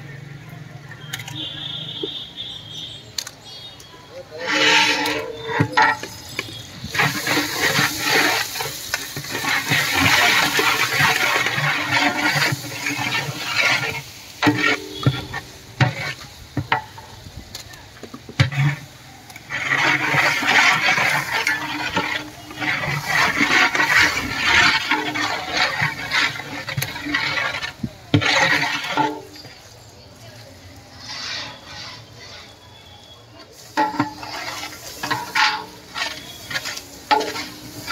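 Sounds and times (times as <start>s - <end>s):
onions sizzling in oil: 1.1s - 37.9s
ladle scraping a pot: 4.2s - 17.2s, 18.0s - 37.9s.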